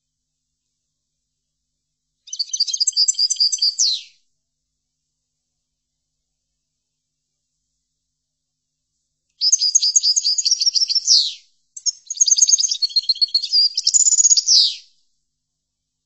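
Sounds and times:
goldfinch twittering song: 2.3 - 4.1, 9.4 - 14.8.

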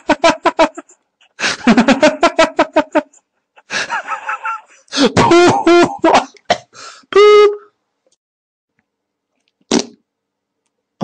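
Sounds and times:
comic mouth noises: 9.7 - 10.0.

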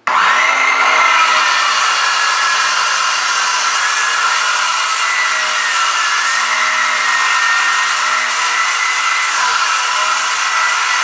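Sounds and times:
power saw cutting wood: 0.0 - 11.0.

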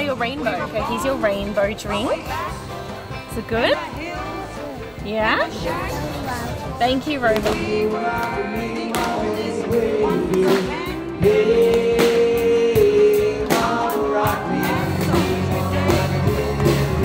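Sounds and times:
live band playing: 0.0 - 17.0
person singing: 7.2 - 17.0.

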